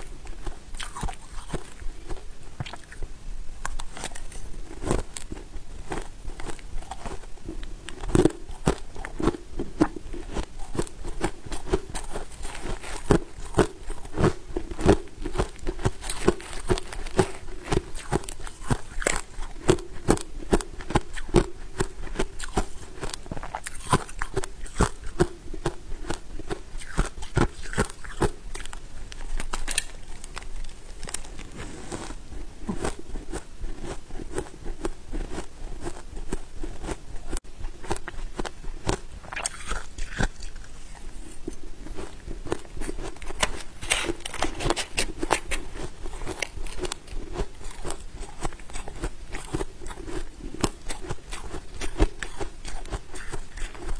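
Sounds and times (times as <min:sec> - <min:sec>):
chewing crunchy frost: 0:00.0 - 0:53.9.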